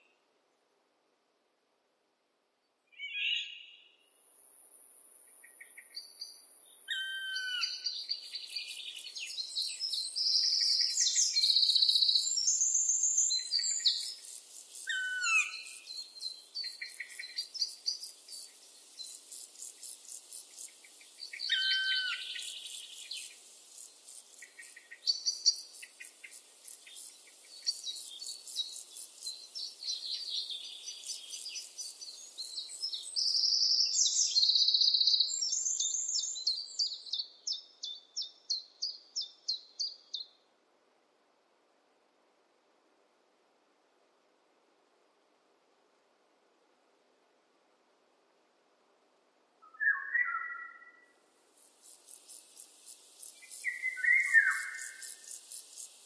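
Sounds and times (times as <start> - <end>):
songbirds singing: 2.9 - 40.5, 49.6 - 56.0
falling whistled bird phrases: 49.7 - 51.0, 53.6 - 55.1.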